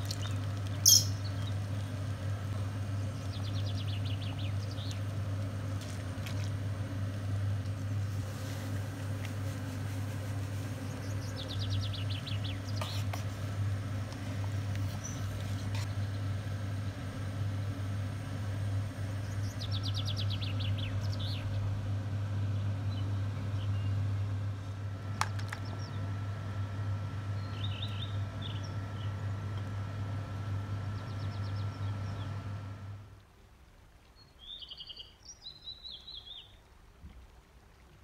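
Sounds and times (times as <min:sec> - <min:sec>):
small birds chirping: 0:00.0 - 0:02.0, 0:02.8 - 0:05.3, 0:10.6 - 0:13.3, 0:14.8 - 0:16.3, 0:19.0 - 0:21.6, 0:27.3 - 0:29.3, 0:30.7 - 0:32.4
steady low hum: 0:00.0 - 0:34.0.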